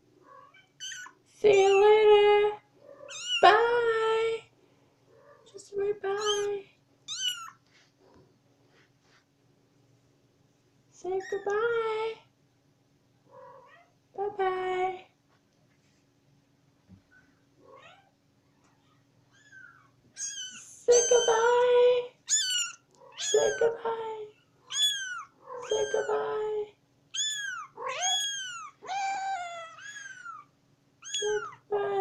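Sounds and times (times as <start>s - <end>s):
kitten meowing: 0.4s - 1.1s, 3.0s - 3.4s, 6.2s - 6.5s, 7.1s - 7.6s, 19.3s - 21.6s, 22.2s - 23.8s, 24.7s - 26.4s, 27.1s - 31.6s.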